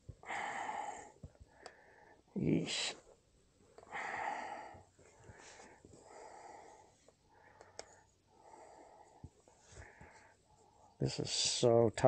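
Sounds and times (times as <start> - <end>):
man breathing heavily: 0.2 - 2.3, 3.8 - 11.0.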